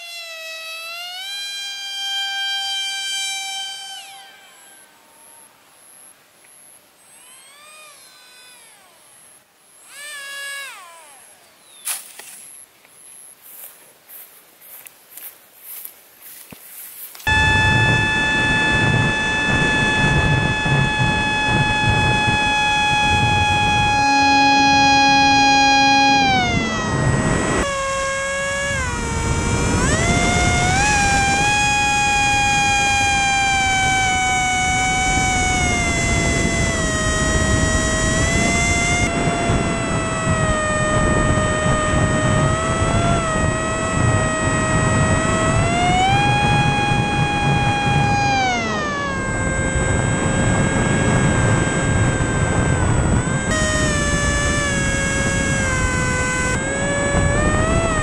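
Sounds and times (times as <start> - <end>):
high-pitched motor whine: 0.0 - 58.0
wind rumble on microphone: 17.2 - 58.0.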